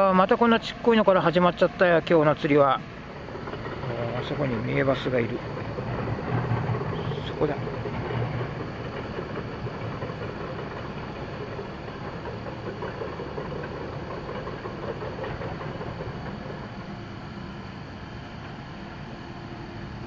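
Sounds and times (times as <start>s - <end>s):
steady rumbling background noise: 0.0s - 20.0s.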